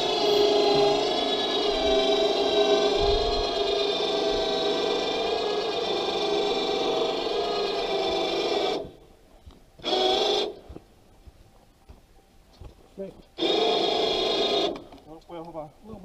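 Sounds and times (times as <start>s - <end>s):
electric winch motor whine: 0.0s - 9.0s, 9.8s - 10.6s, 13.4s - 15.0s.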